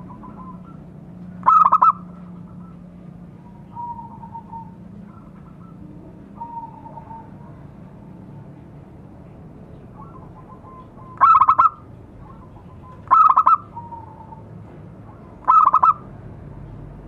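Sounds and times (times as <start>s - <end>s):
dove cooing: 1.4s - 7.9s, 9.9s - 14.5s, 15.2s - 16.0s.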